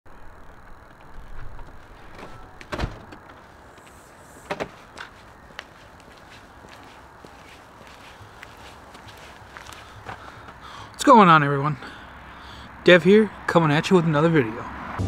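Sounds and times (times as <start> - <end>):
door opening and shutting: 0.7 - 3.4, 4.4 - 4.8
footsteps on concrete: 3.6 - 10.6.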